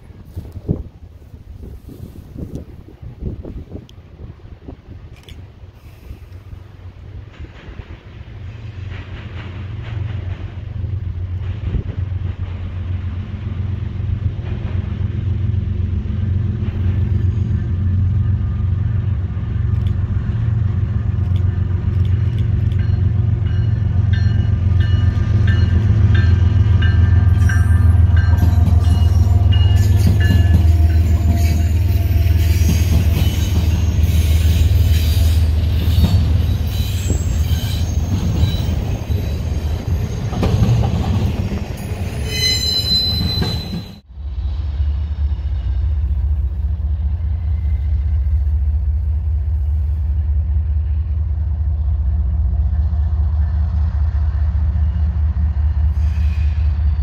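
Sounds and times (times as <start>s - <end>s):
diesel locomotive engine drone: 0.0s - 57.0s
train wheels squealing on rails: 16.6s - 19.1s, 21.2s - 50.3s, 53.4s - 57.0s.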